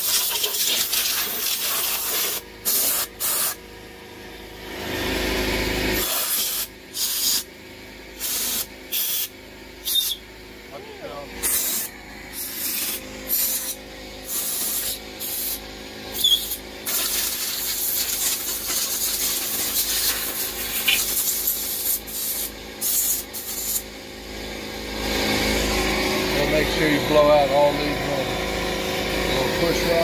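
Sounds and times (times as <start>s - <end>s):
compressed-air blow gun hissing: 0.0s - 3.6s.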